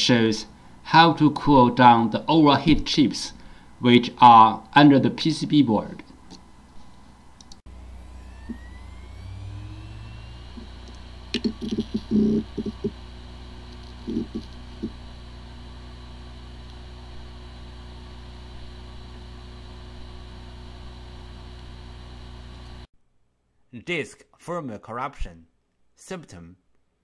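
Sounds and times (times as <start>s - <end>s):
hard drive whirring: 6.2s - 22.9s.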